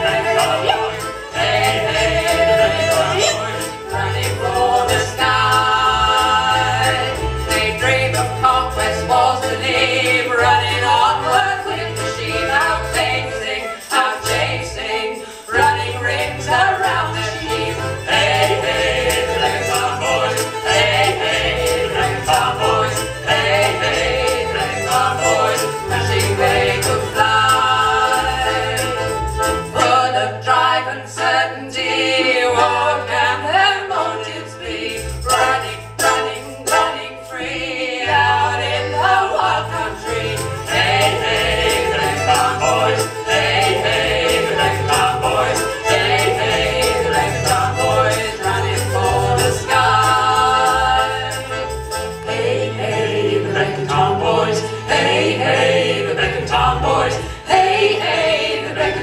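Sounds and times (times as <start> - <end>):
person singing: 0.0 - 3.7
accordion: 0.0 - 59.0
fiddle: 0.0 - 59.0.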